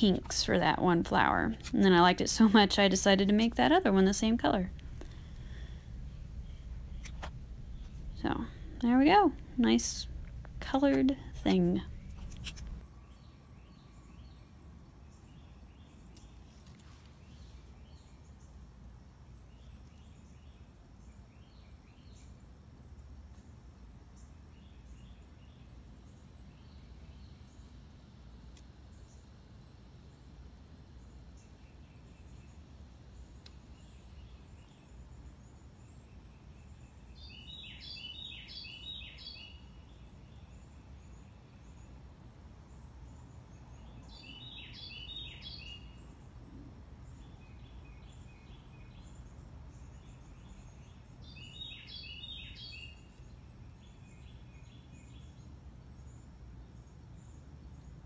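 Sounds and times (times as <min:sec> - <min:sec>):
low background rumble: 0:00.0 - 0:15.4
small birds chirping: 0:00.0 - 0:18.8, 0:31.0 - 0:58.0.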